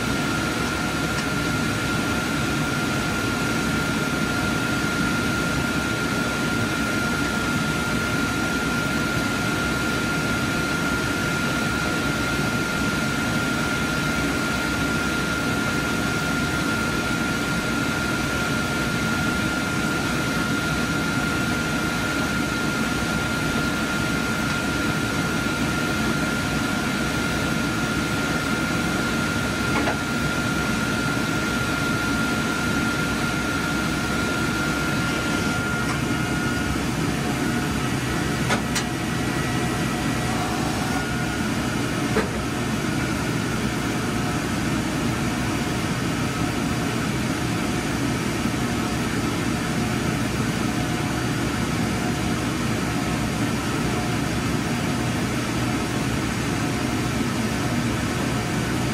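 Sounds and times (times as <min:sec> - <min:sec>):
ventilation fans whirring: 0:00.0 - 0:58.9
high whine: 0:20.1 - 0:46.8.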